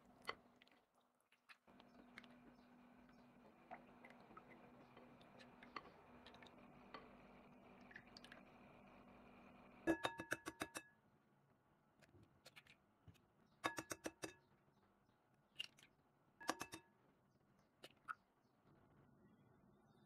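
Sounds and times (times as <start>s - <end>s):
eggs tapping on glass bowl: 9.9s - 10.8s, 16.4s - 16.8s.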